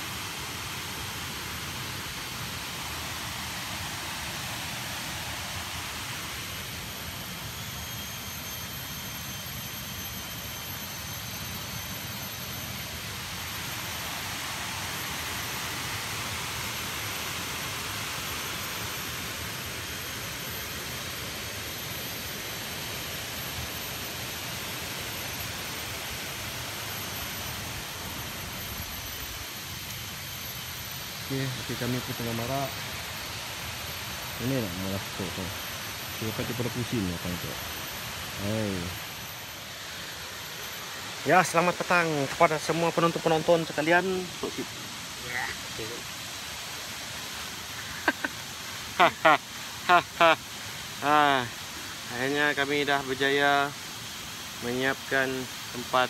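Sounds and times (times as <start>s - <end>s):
waterfall roaring: 37.6s - 53.6s.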